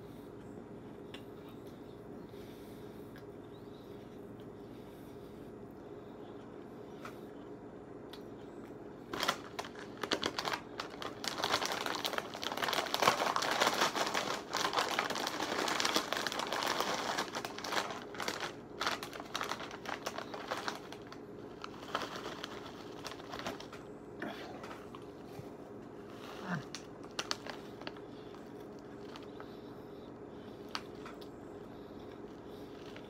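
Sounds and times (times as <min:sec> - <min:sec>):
foil chip bag crinkling: 0:09.0 - 0:23.9, 0:26.6 - 0:29.6, 0:30.4 - 0:33.0.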